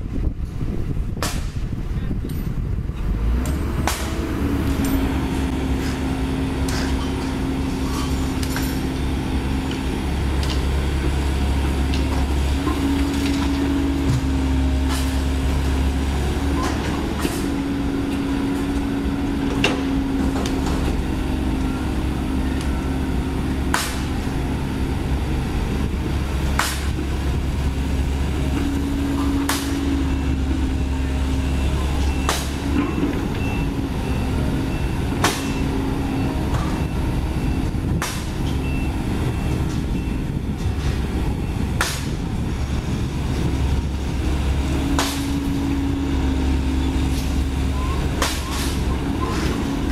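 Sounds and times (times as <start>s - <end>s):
excavator engine running: 0.0s - 49.9s
reversing alarm beeps: 29.1s - 37.8s, 38.4s - 40.5s, 47.7s - 49.5s.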